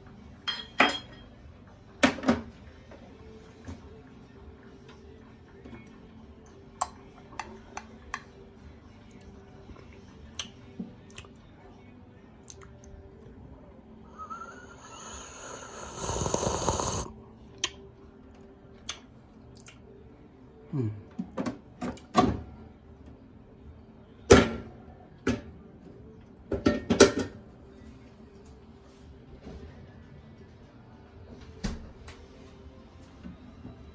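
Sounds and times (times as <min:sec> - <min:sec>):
spoon clinking glass cup: 0:00.4 - 0:01.4.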